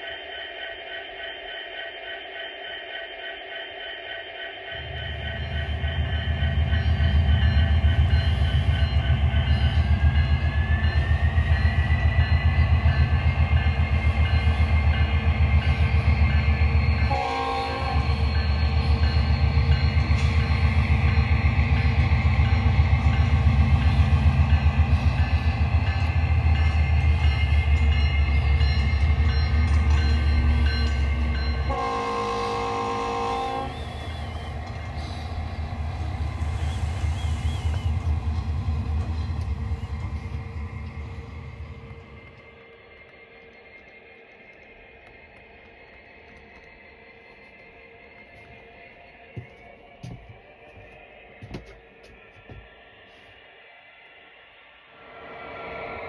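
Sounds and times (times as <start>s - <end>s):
multi-note air horn: 17.1s - 18.1s, 31.7s - 34.1s.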